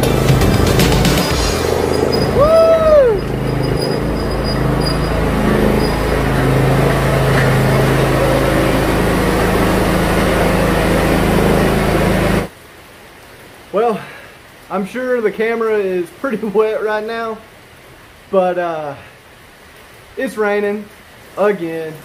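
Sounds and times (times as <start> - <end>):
ride-on mower engine running: 0.0 - 12.5.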